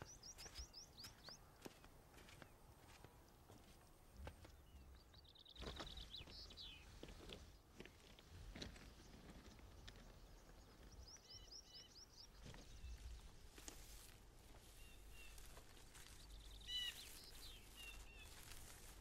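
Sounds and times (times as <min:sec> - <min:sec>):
small birds chirping: 0:00.0 - 0:02.7, 0:03.3 - 0:19.0
footsteps on gravel: 0:00.3 - 0:04.4, 0:12.4 - 0:19.0.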